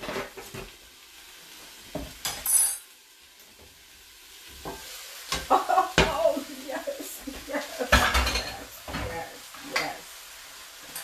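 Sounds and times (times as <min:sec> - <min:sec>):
food sizzling in a skillet: 0:00.0 - 0:11.0
kitchenware knocks and clatter: 0:07.8 - 0:09.2.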